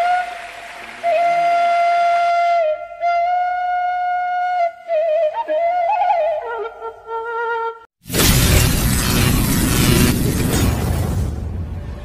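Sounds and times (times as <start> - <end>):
solo flute melody: 0.0 - 7.9.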